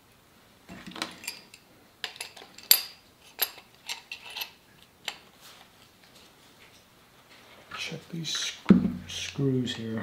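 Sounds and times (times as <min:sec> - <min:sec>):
metal tools clinking: 0:00.9 - 0:04.6.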